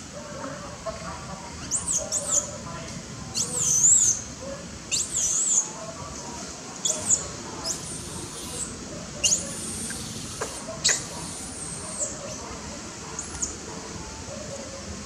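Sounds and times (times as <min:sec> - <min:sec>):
baby monkey shrill squeals: 0:01.6 - 0:02.5, 0:03.4 - 0:04.2, 0:04.9 - 0:05.7, 0:06.8 - 0:12.1.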